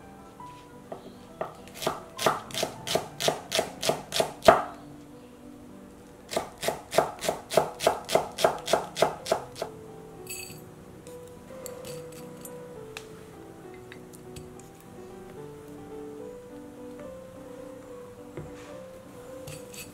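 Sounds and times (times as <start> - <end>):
knife chopping on wooden board: 1.8 - 4.7, 6.3 - 9.7.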